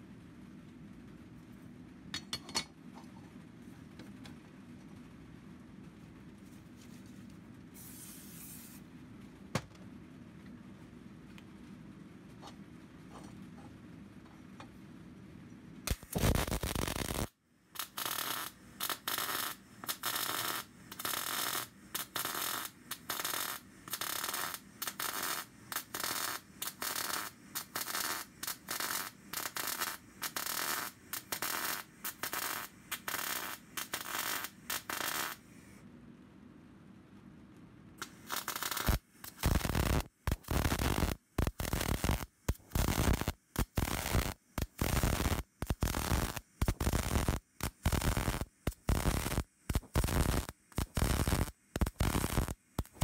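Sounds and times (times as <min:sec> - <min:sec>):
arc welding crackling and hissing: 0:07.7 - 0:08.9, 0:15.9 - 0:35.8, 0:38.0 - 0:53.0.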